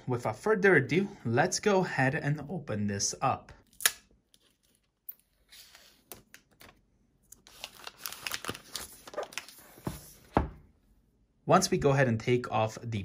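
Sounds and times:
plastic film crinkling: 7.4 - 9.6.

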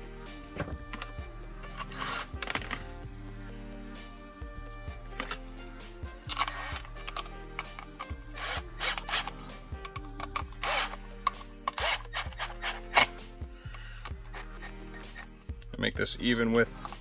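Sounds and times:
power driver whirring: 0.6 - 2.9, 6.2 - 15.3.

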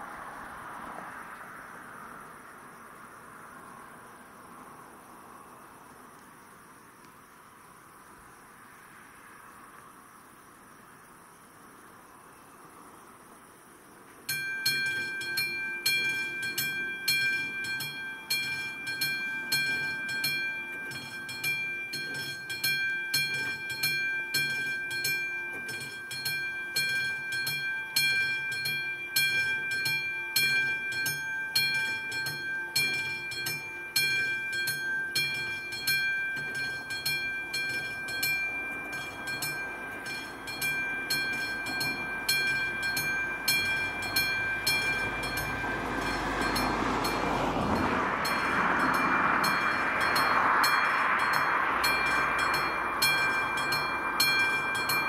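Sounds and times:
level crossing warning bell: 14.3 - 55.0
train rumble: 14.3 - 55.0.

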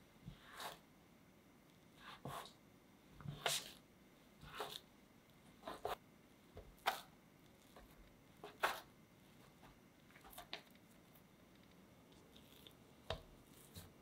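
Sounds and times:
scraper cutting dough: 3.2 - 3.8, 4.4 - 4.8, 5.6 - 6.0, 6.8 - 8.9, 12.3 - 14.0.

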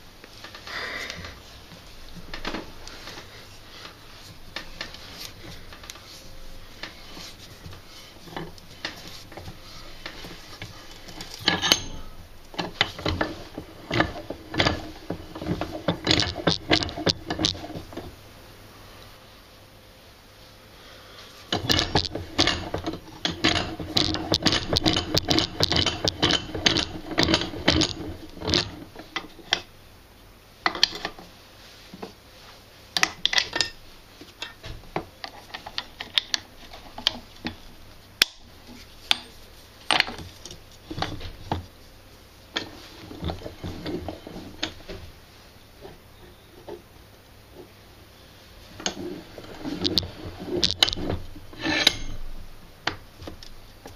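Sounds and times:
metal tools clinking and rattling: 11.2 - 12.2, 49.7 - 52.3.

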